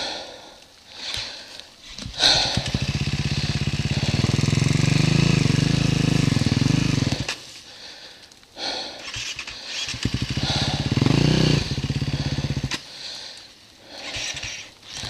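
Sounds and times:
dirt bike engine running hard: 2.0 - 7.5, 9.1 - 13.3.

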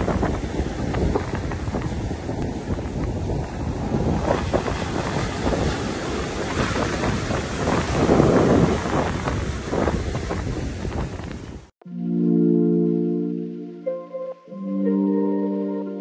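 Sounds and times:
ocean surf washing onto beach: 0.0 - 11.7
wind buffeting microphone: 0.0 - 11.7.

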